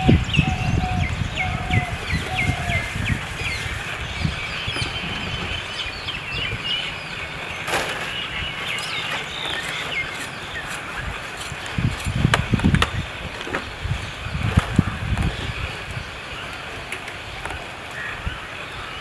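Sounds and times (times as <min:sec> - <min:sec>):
birds chirping: 0:00.0 - 0:19.0
low rumble: 0:02.8 - 0:07.2.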